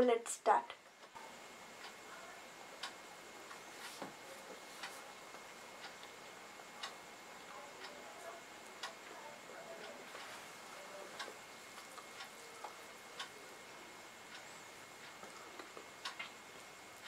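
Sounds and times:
clock ticking: 2.7 - 3.6, 4.6 - 17.0.

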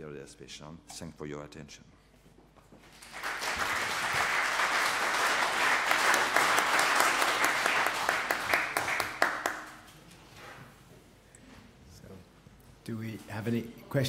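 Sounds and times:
audience applauding: 2.9 - 9.9.

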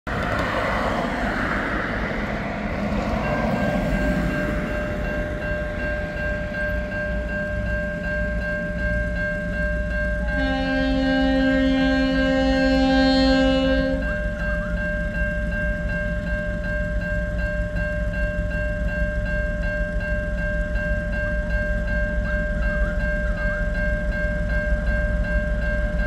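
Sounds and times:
locomotive engine rumble: 0.1 - 16.3
train horn chord: 10.2 - 14.7.

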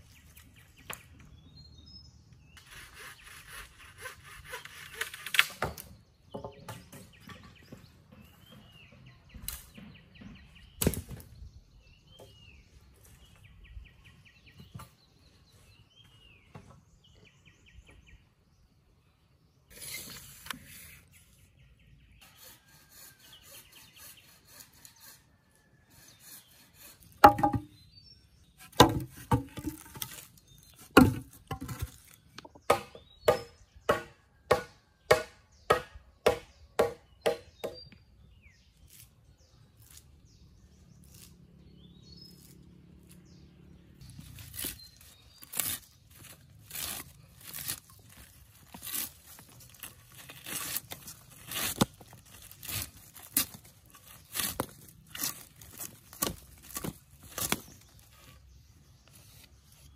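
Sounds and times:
bird chirps: 0.0 - 28.8
chopping into a wooden log: 27.2 - 27.7, 28.6 - 30.2, 30.9 - 37.8.

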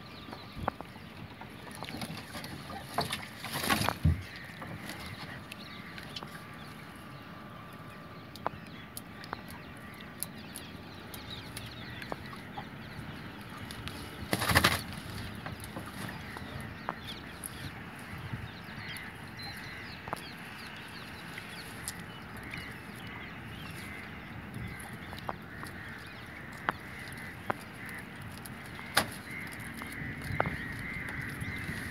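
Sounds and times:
fish flapping and knocking: 1.8 - 5.2, 13.8 - 17.0, 26.6 - 31.9.

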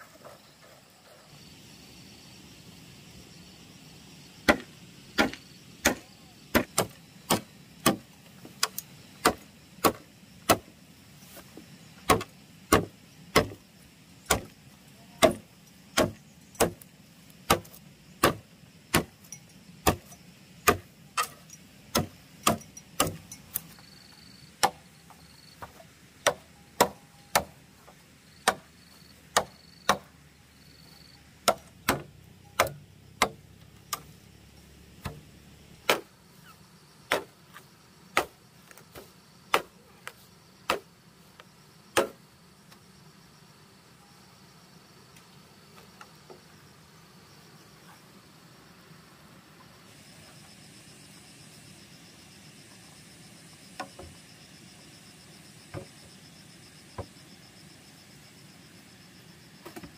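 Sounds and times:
tool striking bamboo: 4.4 - 10.7, 12.0 - 13.6, 14.3 - 14.5, 15.2 - 23.7, 24.6 - 24.8, 25.6 - 27.6, 28.4 - 28.7, 29.3 - 30.1, 31.4 - 34.1, 35.0 - 36.1, 37.1 - 37.4, 38.1 - 39.8, 40.7 - 40.9, 42.0 - 42.2.

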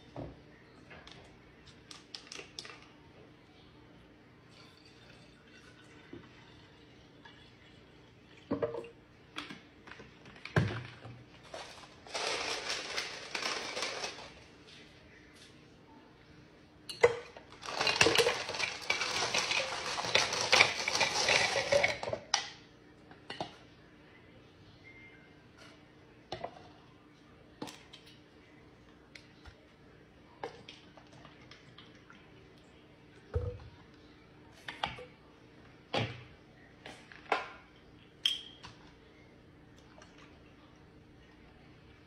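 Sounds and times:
coffee pouring into jar: 17.4 - 22.4.

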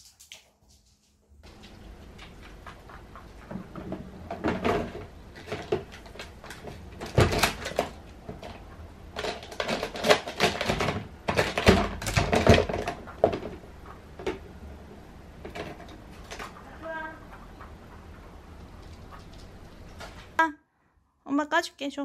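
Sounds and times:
plastic drawer clacks and rustles: 3.5 - 13.6.

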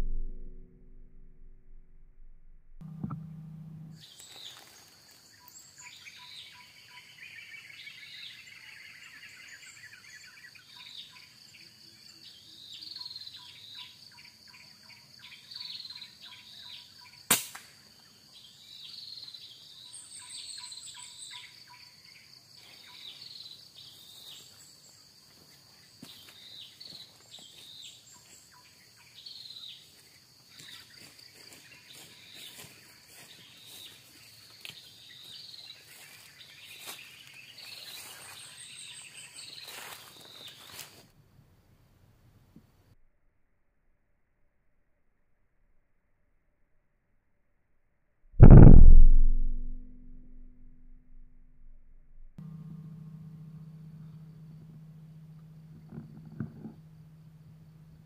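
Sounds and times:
air rifle shot: 48.4 - 51.2.

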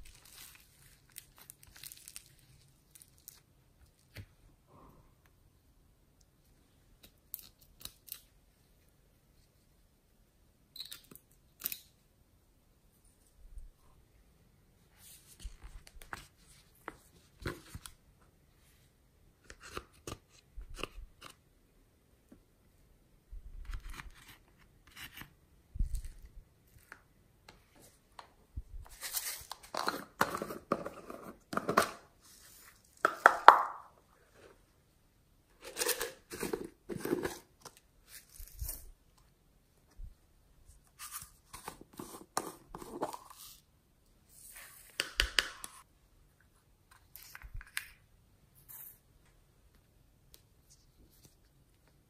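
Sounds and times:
slime crackling and squishing: 0.0 - 3.4.

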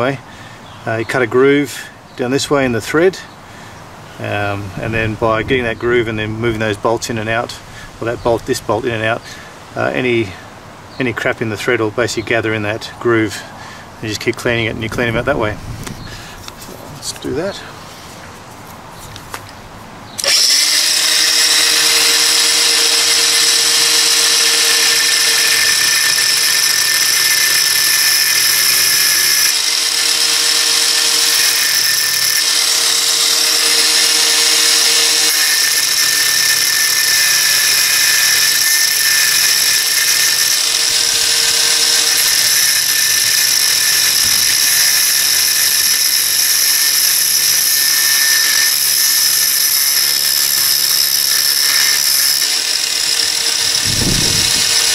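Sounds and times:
angle grinder cutting steel: 20.2 - 54.9.

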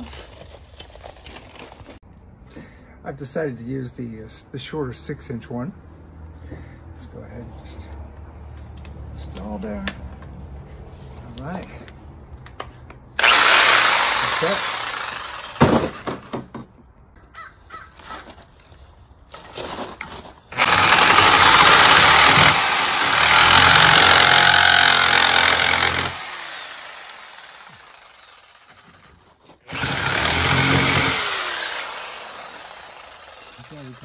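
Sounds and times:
reciprocating saw cutting metal pipe: 13.2 - 15.8, 20.5 - 28.8, 29.7 - 34.0.

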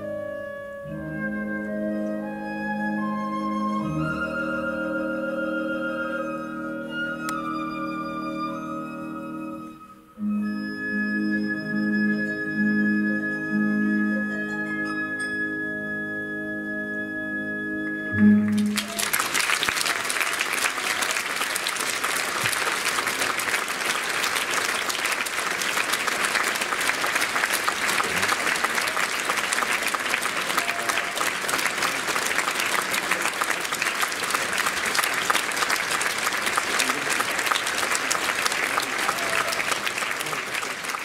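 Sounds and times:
orchestral music: 0.0 - 41.0
audience applause: 18.4 - 41.0.

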